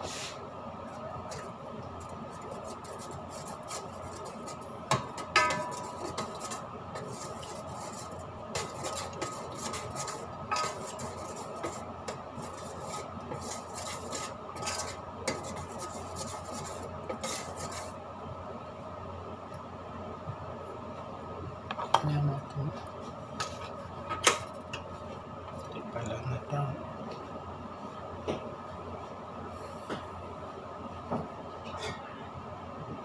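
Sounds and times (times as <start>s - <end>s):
steady background hum: 0.0s - 33.0s
utensil stirring sauce in pot: 1.2s - 18.0s
utensil clinking against pot: 4.9s - 6.4s.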